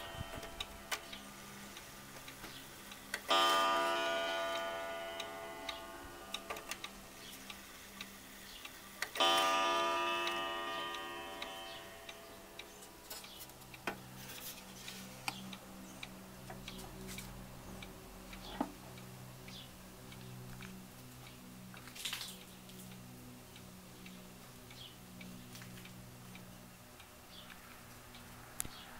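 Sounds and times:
wall clock striking: 0.0 - 1.2, 3.2 - 7.2, 9.0 - 14.1
clock ticking: 0.0 - 14.2.

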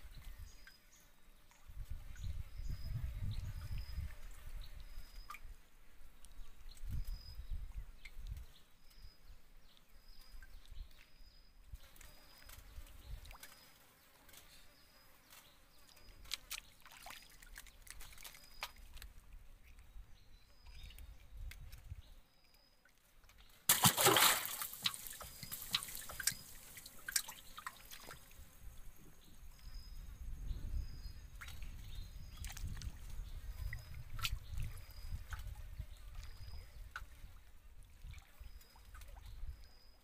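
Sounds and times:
water lapping against a boat: 16.1 - 19.0, 23.7 - 28.5
loud water splash: 23.7 - 28.1.

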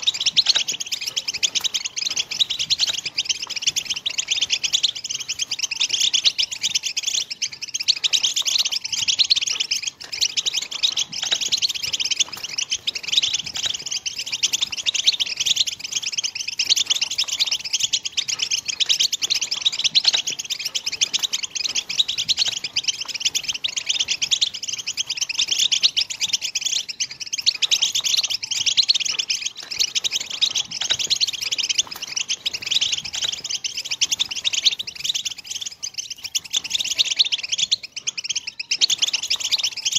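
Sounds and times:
goldfinch twittering song: 0.0 - 39.9.

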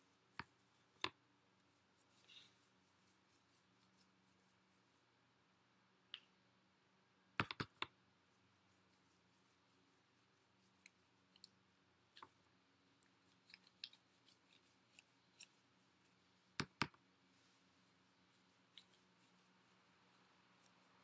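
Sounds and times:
faint paintbrush clicks and taps: 0.3 - 1.2, 7.4 - 8.0, 10.8 - 12.4, 16.5 - 17.0.

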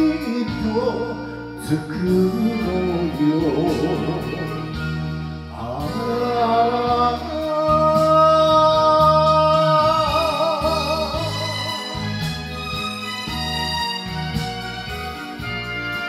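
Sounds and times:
man singing into a microphone: 0.0 - 12.0
karaoke backing track: 0.0 - 16.0.

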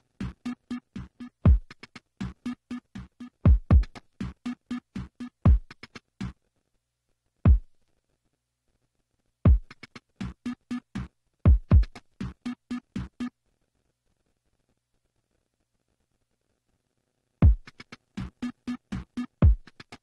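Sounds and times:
drum machine beat: 0.0 - 6.4, 7.5 - 7.8, 9.5 - 13.3, 17.4 - 20.0.

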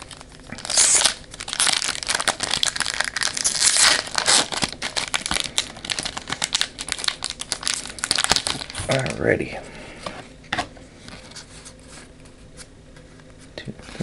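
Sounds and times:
wrapper tearing: 0.0 - 9.3
foil wrapper crinkling: 0.0 - 9.4.

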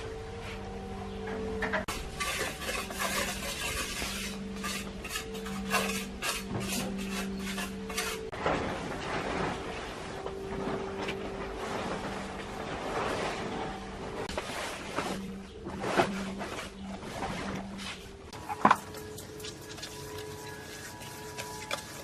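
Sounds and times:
trowel scraping wet cement: 1.9 - 8.3, 18.4 - 22.0.

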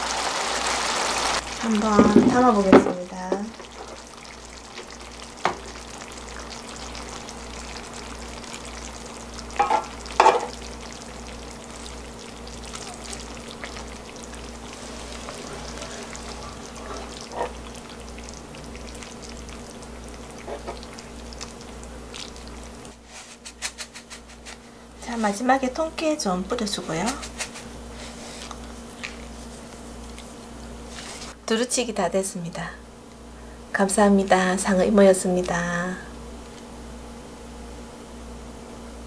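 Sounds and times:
meat sizzling in a frying pan: 0.0 - 23.1.

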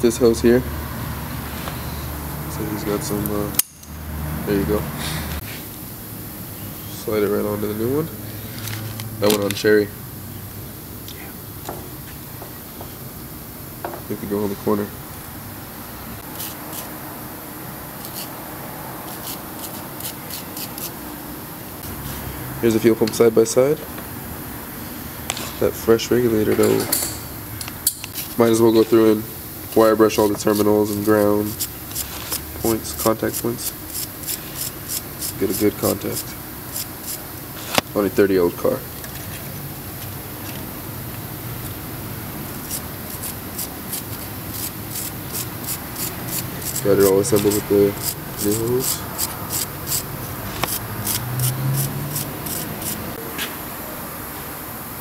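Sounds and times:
wire brush scrubbing metal: 19.0 - 21.0, 28.1 - 37.8, 42.5 - 53.2.

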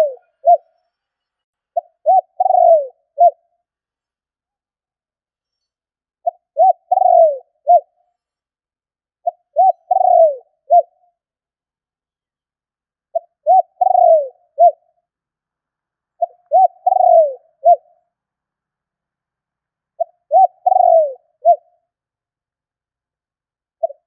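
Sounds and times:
dove cooing: 0.0 - 0.7, 1.8 - 3.4, 6.2 - 8.0, 9.2 - 11.0, 13.1 - 14.9, 16.2 - 17.9, 20.0 - 21.7, 23.8 - 24.0.

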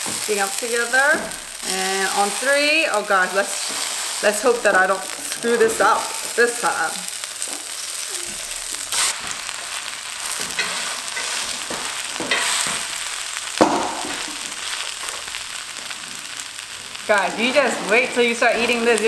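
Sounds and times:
pancake sizzling in oil: 0.0 - 19.0
metal spatula scraping pan: 10.3 - 12.8, 17.1 - 19.0.

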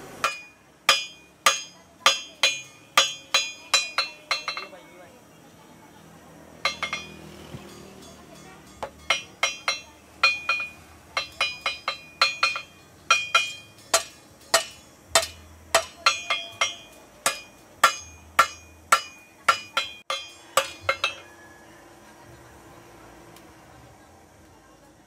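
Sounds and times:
hammer ringing on anvil: 0.2 - 4.9, 6.6 - 21.7.

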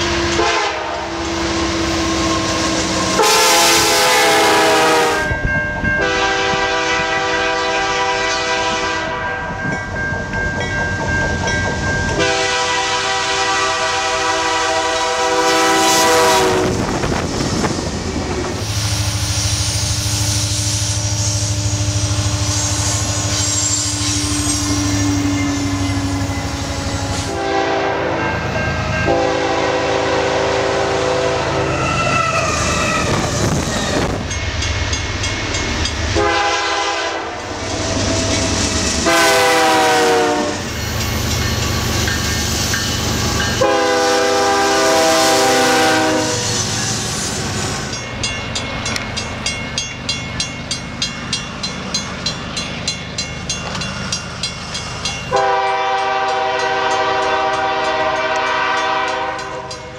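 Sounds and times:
locomotive air horn blasts: 0.0 - 5.4, 6.0 - 9.5, 12.2 - 17.2, 21.2 - 28.2, 29.0 - 33.5, 36.1 - 37.8, 39.0 - 40.7, 43.6 - 46.6, 55.3 - 59.8
train engines and rolling cars: 0.0 - 59.9
level crossing warning bell: 4.0 - 6.8, 9.1 - 13.0, 23.5 - 27.1, 28.0 - 30.1, 40.9 - 44.0, 47.8 - 59.9.

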